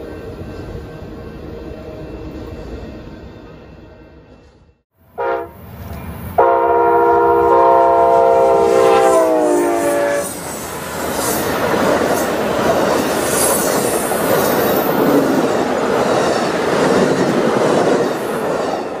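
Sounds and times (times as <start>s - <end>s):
passing train rumble and clatter: 0.0s - 19.0s
locomotive horn: 5.0s - 5.6s, 6.4s - 10.4s.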